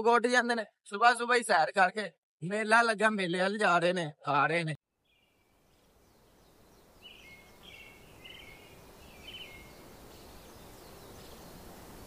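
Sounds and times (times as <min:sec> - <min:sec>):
faint outdoor background noise: 0:04.9 - 0:12.0
small birds chirping: 0:05.0 - 0:12.0.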